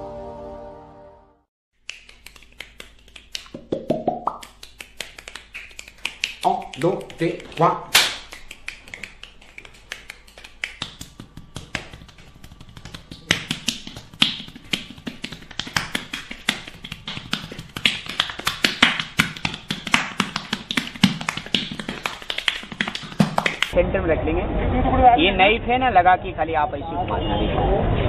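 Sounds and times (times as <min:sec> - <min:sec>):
hands slapping bare skin: 0:01.8 - 0:23.8.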